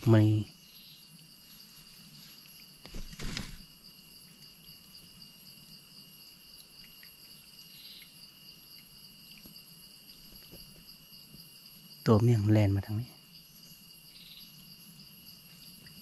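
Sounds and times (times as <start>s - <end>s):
forest insects droning: 0.0s - 16.0s
loud rustling burst: 2.8s - 3.6s.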